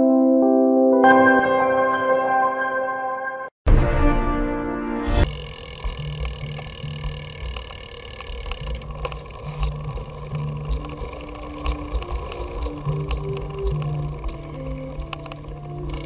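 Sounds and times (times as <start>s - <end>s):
bike rattling clicks: 5.2s - 16.0s
wind and road rumble: 5.2s - 16.0s.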